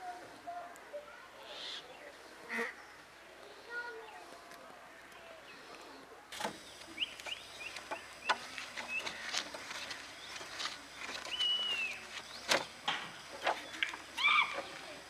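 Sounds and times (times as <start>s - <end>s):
bird chirps: 6.6s - 14.7s
high bird whistle: 11.3s - 12.0s.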